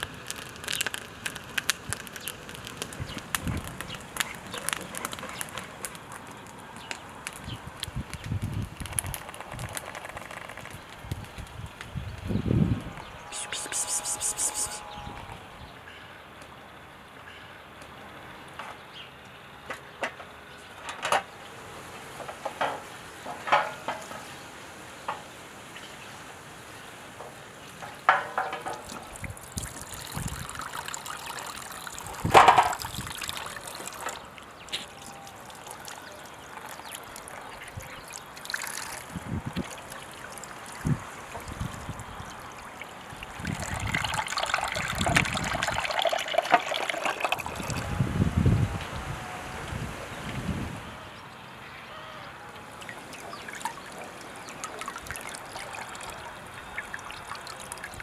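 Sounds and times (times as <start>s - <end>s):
tap water running into sink: 43.1s - 47.8s.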